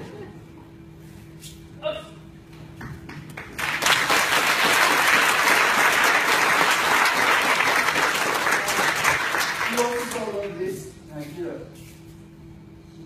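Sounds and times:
audience applauding: 0:03.1 - 0:10.4.

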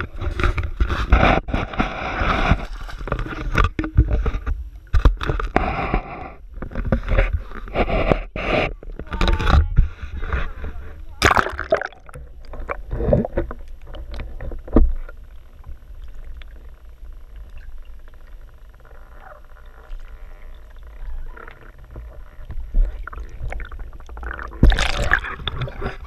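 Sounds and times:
muffled underwater rumble: 0:00.0 - 0:26.0
underwater clicks and bubbling: 0:00.0 - 0:26.0
water splashing: 0:11.2 - 0:14.4, 0:19.7 - 0:26.0.

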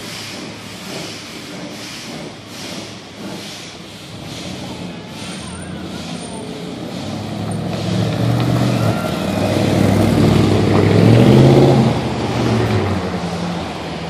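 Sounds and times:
cars and trucks driving past: 0:04.0 - 0:14.0.

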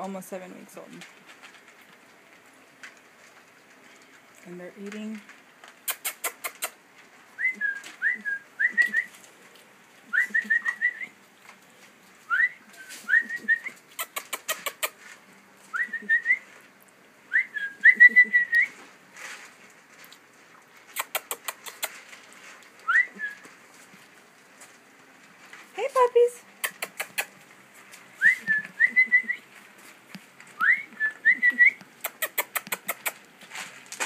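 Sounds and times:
eating clicks: 0:05.8 - 0:06.8, 0:13.9 - 0:15.0, 0:20.9 - 0:22.0, 0:26.4 - 0:27.4, 0:31.9 - 0:33.3
puppies squeaking and whining: 0:05.8 - 0:06.8, 0:12.7 - 0:15.0, 0:20.9 - 0:22.1, 0:26.5 - 0:27.5, 0:31.3 - 0:33.2.

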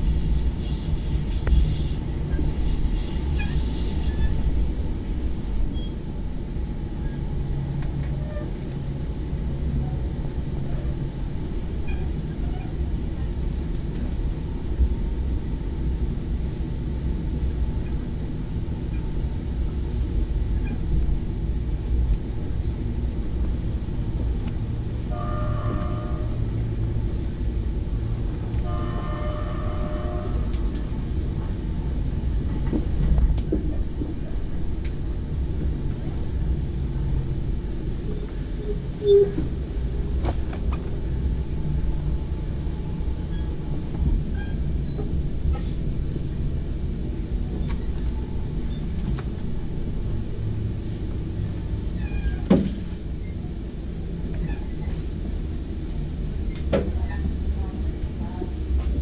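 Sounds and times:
low rumble of train wheels on rail: 0:00.0 - 0:59.0
train horn blasts: 0:25.1 - 0:26.5, 0:28.6 - 0:30.6.

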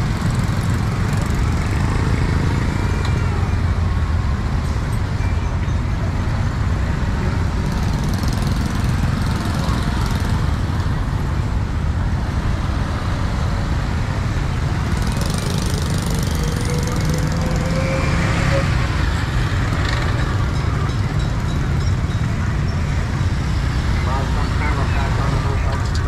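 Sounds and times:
street traffic rumble: 0:00.0 - 0:26.0.

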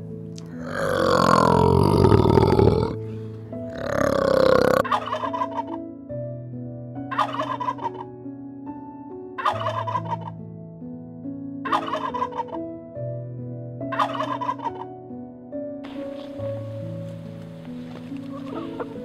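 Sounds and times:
soft background music: 0:00.0 - 0:19.0
rough animal calls: 0:00.4 - 0:03.0, 0:03.7 - 0:05.8, 0:07.1 - 0:08.1, 0:11.7 - 0:12.6, 0:13.9 - 0:14.9, 0:18.2 - 0:19.0
turkey gobbling: 0:04.8 - 0:05.8, 0:07.1 - 0:08.1, 0:09.4 - 0:10.3, 0:11.7 - 0:12.6, 0:13.9 - 0:14.9, 0:18.3 - 0:19.0.

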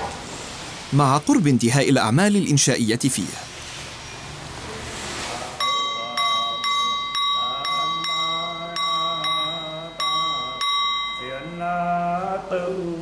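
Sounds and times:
monk chanting: 0:05.3 - 0:13.0
bell struck ringing: 0:05.6 - 0:11.6.

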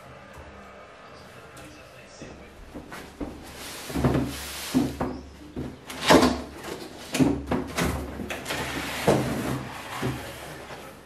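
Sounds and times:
cardboard flaps scraping and knocking: 0:03.2 - 0:10.8.

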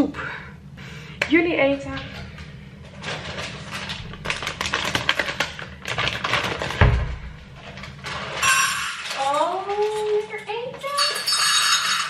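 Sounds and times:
dry cat food rattling: 0:02.9 - 0:06.8, 0:07.6 - 0:11.2.

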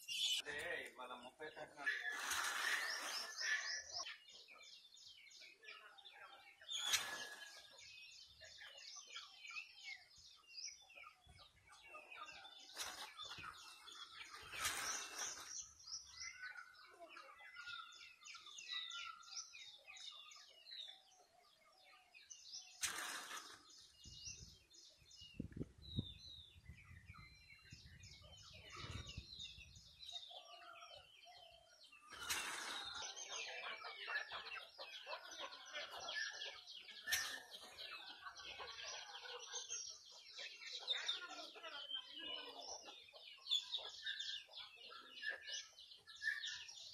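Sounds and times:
small birds chirping: 0:00.0 - 0:46.9
turkeys gobbling bursts: 0:37.0 - 0:37.6.

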